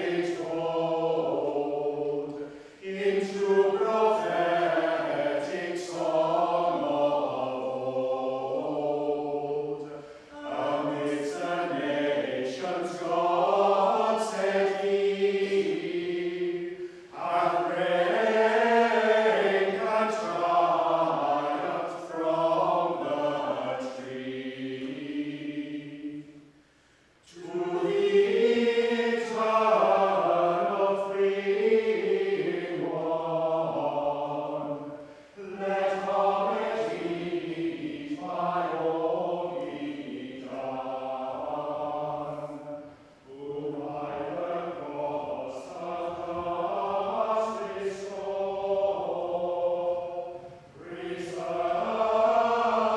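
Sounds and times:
group of voices chanting: 0.0 - 26.2.

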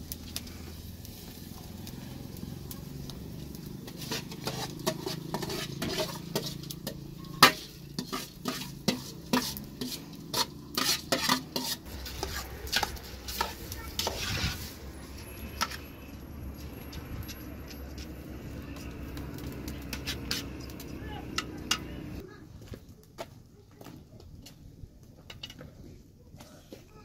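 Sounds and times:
metal spoon clinking on pots: 3.9 - 14.4, 15.1 - 22.2.

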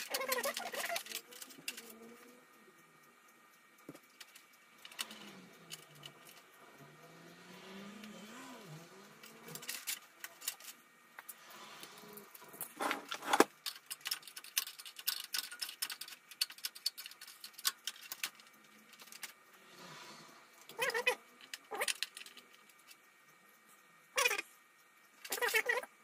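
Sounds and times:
plastic and metal clicks and rattles: 0.0 - 2.4, 9.2 - 11.4, 12.2 - 19.5, 20.6 - 23.1.

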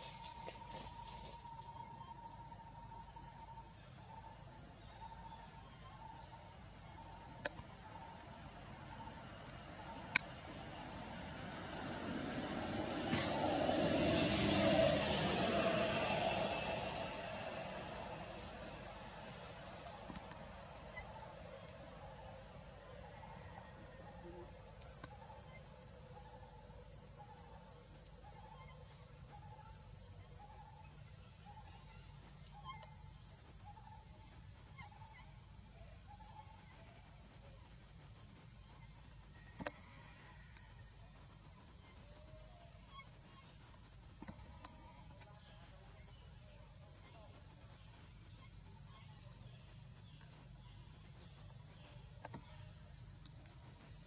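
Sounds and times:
forest insects chorus: 0.0 - 54.0.

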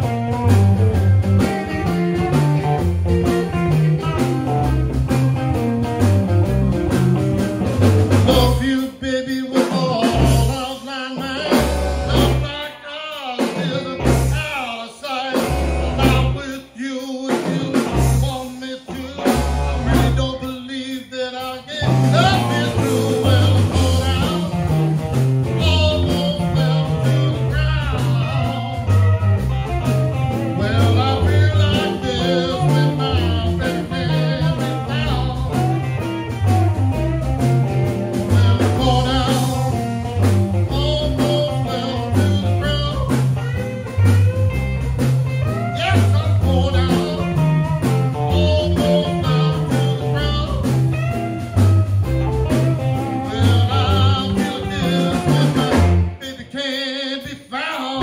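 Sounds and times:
electric guitars: 0.0 - 58.0
walking bass guitar line: 0.0 - 58.0
man singing into microphone: 8.2 - 24.7, 25.6 - 28.9, 30.5 - 35.7, 38.3 - 39.8, 40.6 - 43.4, 45.8 - 50.8, 53.0 - 58.0.

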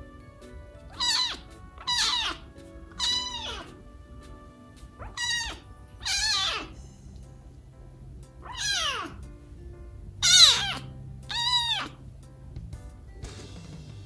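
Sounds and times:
kitten meowing: 0.9 - 3.8, 5.0 - 6.8, 8.4 - 9.2, 10.2 - 12.0.

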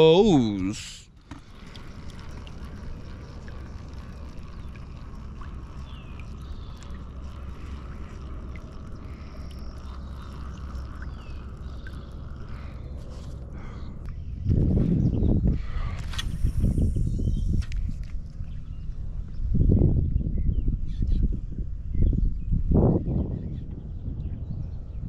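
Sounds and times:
water sloshing around kayak hull: 1.2 - 13.6
low rumble: 1.2 - 25.0.

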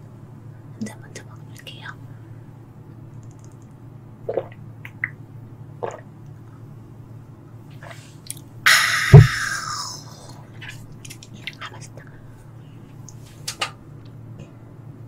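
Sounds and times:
woman swallowing: 4.3 - 5.2, 5.8 - 6.1, 8.7 - 10.4
woman exhaling loudly: 8.7 - 10.3.

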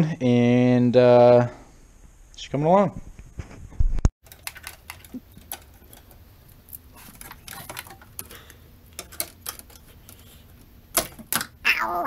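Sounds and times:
clips and connectors clicking: 4.2 - 11.6.

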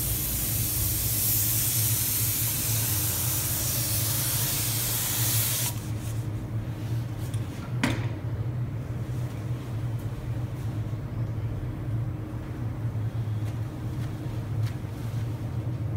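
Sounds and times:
spray hissing: 0.0 - 5.8
low steady hum: 0.0 - 15.9.

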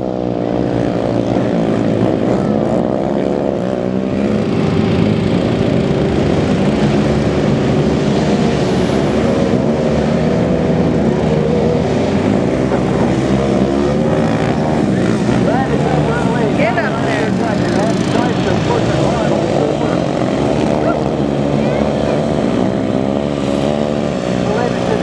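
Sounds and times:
quad bike engines revving: 0.0 - 25.0.

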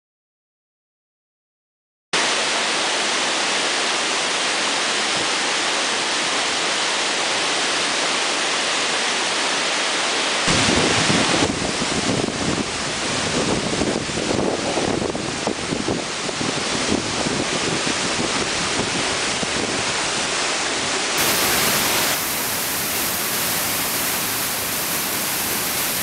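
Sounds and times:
waterfall rushing: 2.2 - 13.2, 19.2 - 26.0
wind buffeting microphone: 10.5 - 20.3.

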